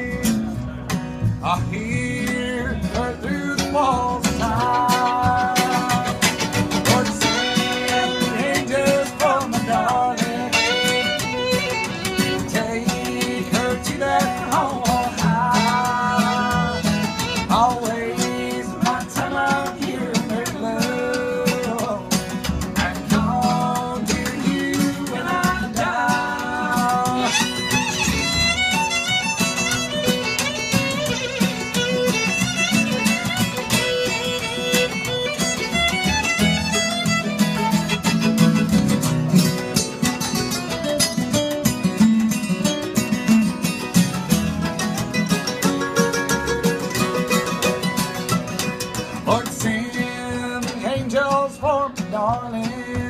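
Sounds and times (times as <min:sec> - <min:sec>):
acoustic guitar chords: 0:00.0 - 0:53.0
mandolin chords: 0:00.0 - 0:53.0
upright bass: 0:00.0 - 0:53.0
bowed fiddle melody: 0:04.5 - 0:08.8, 0:10.4 - 0:13.5, 0:15.2 - 0:17.8, 0:27.0 - 0:40.9.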